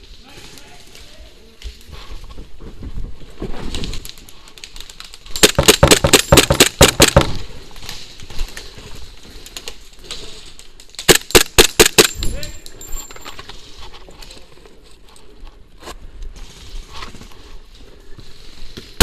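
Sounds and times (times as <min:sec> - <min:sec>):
airsoft pistol shots: 0:05.4 - 0:07.4, 0:11.1 - 0:12.2
footsteps rustling through undergrowth: 0:13.4 - 0:19.0.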